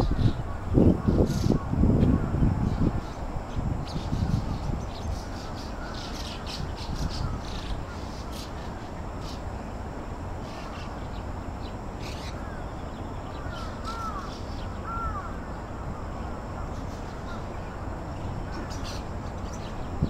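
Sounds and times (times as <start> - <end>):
birds chirping: 0.0 - 20.0
low background noise: 0.0 - 20.0
arching bird calls: 10.4 - 20.0.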